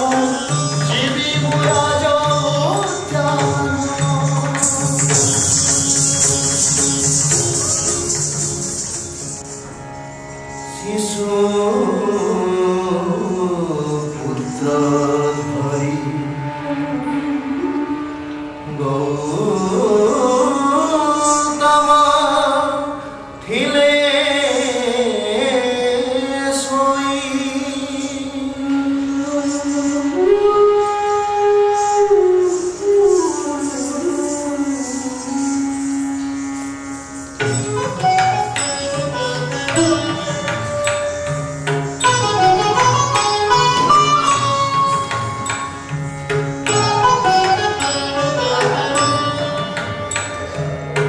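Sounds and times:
sharp percussion strikes: 0.0s - 9.8s, 37.1s - 51.0s
indian classical music: 0.0s - 51.0s
person singing long gliding notes: 10.6s - 37.0s
plucked string notes: 36.2s - 51.0s.

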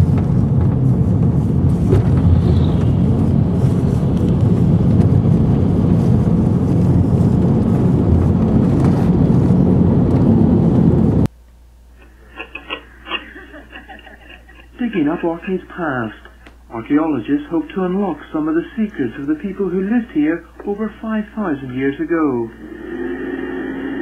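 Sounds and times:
car engine and road noise: 0.0s - 11.3s.

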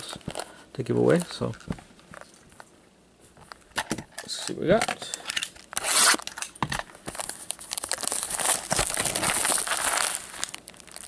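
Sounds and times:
cellophane crinkling: 5.4s - 11.0s
box cutter slicing plastic wrap: 5.8s - 6.4s.

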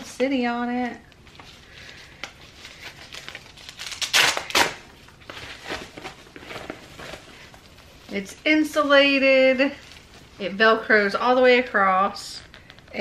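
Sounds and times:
fabric bag rustling and crinkling: 1.2s - 11.1s.

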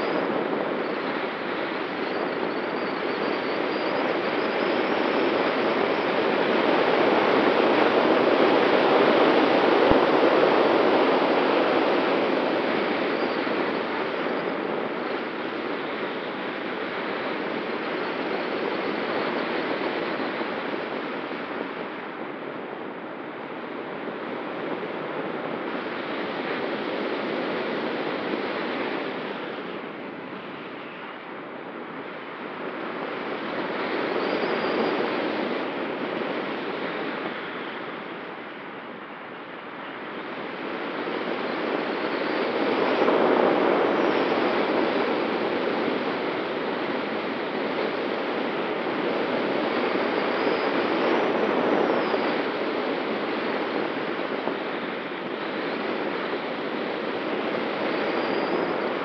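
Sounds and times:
faint steady whistle: 0.0s - 20.3s, 28.0s - 40.6s, 56.5s - 59.0s
rushing slipstream of glider: 0.0s - 59.0s.

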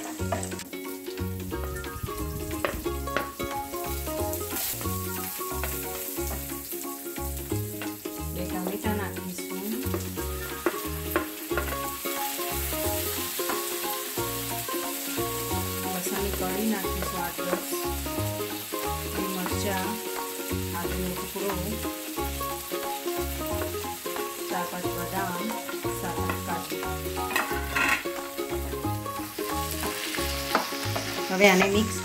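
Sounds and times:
food sizzling in hot oil: 0.0s - 32.0s
wooden spoon knocking pan: 2.6s - 3.5s, 4.6s - 6.5s, 9.8s - 12.0s, 15.8s - 17.8s, 23.5s - 28.2s, 29.8s - 31.9s.

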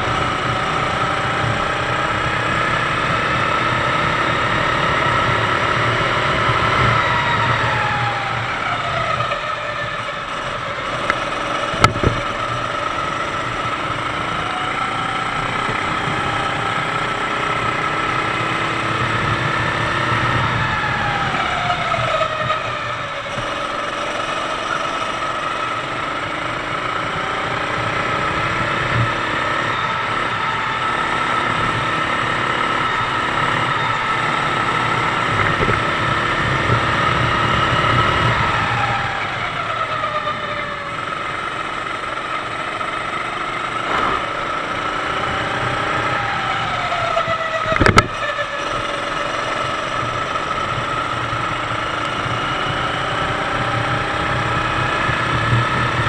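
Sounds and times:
kart engine running: 0.0s - 56.0s
sharp knock: 43.8s - 44.4s.

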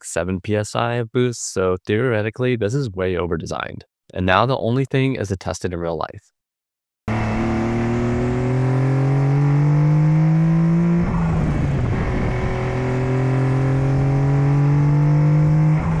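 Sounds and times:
car engine pulling under load: 7.1s - 16.0s.

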